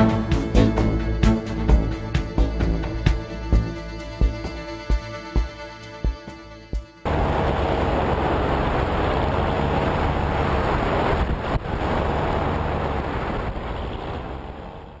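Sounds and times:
engine and propeller drone: 7.0s - 15.0s
wind rushing over microphone: 7.1s - 15.0s.

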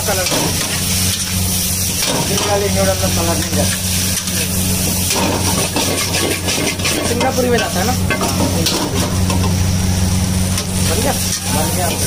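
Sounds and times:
noodles sizzling in a wok: 0.0s - 12.0s
metal spatula scraping a pan: 5.0s - 9.5s.

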